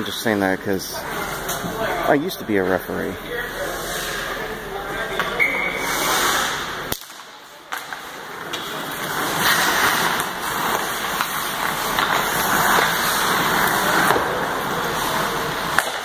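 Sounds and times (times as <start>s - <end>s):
skate blades scraping ice: 3.6s - 16.0s.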